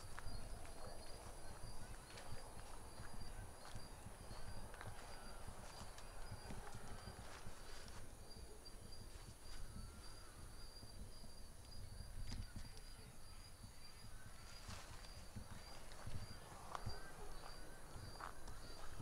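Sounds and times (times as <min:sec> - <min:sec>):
footsteps in undergrowth: 0:00.0 - 0:08.2, 0:14.2 - 0:19.0
night insects chirping: 0:00.0 - 0:19.0.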